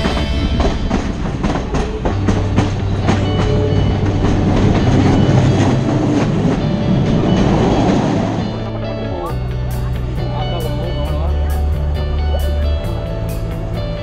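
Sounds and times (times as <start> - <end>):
train wheels clicking on rail joints: 0.0 - 8.6
moving train carriage noise: 0.0 - 14.0.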